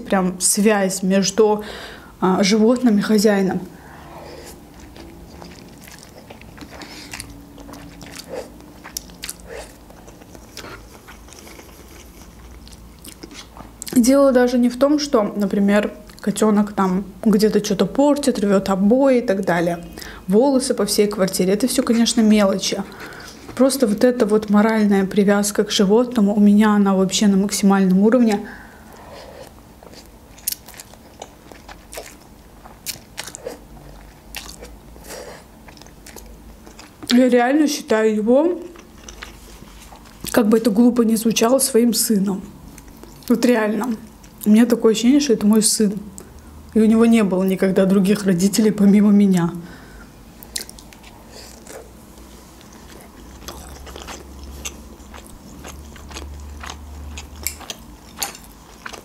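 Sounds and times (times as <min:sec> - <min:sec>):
wet chewing and smacking: 0:04.4 - 0:14.0, 0:27.9 - 0:37.2, 0:38.6 - 0:40.4, 0:50.4 - 0:59.0.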